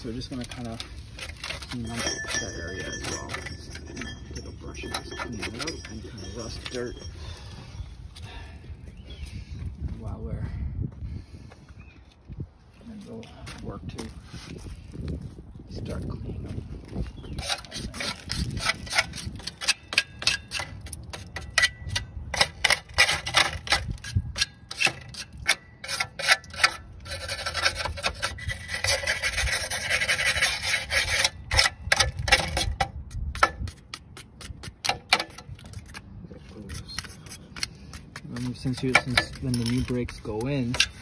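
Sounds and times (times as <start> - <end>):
brush scrubbing metal: 24.8 - 31.6.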